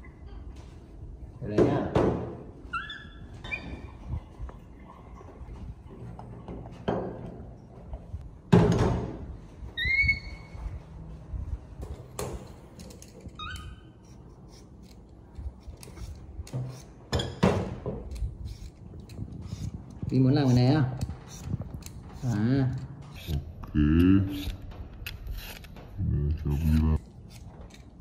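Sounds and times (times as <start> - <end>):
short high squeaks: 2.7 - 4.1, 9.7 - 10.8, 13.2 - 14.3.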